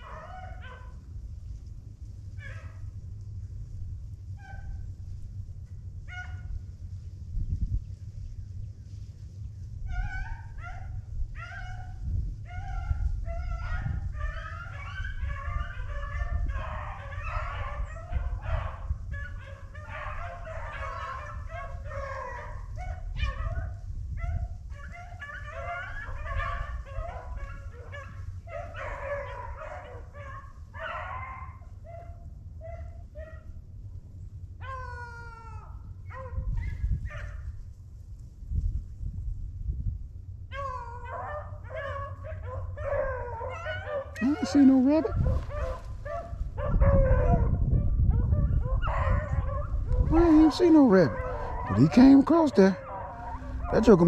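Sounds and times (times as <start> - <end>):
dogs baying: 0.0 - 1.0, 6.1 - 6.6, 9.9 - 33.5, 34.6 - 37.6, 40.5 - 54.0.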